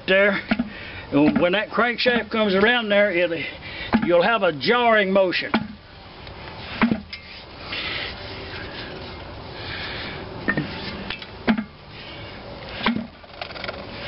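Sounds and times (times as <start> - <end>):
flywheel scraping and rattling: 13.1 - 14.0.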